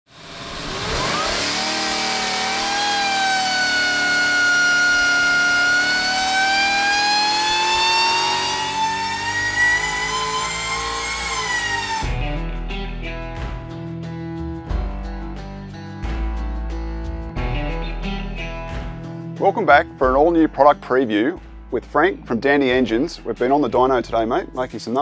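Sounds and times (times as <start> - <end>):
supercharged engine revving: 0.1 - 12.4.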